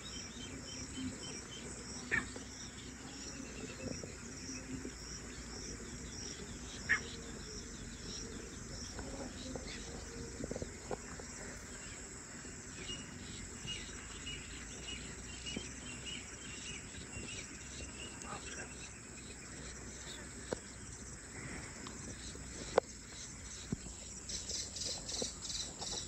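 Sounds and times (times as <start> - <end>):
birds calling: 0.0 - 26.0
insects chirring: 0.0 - 26.0.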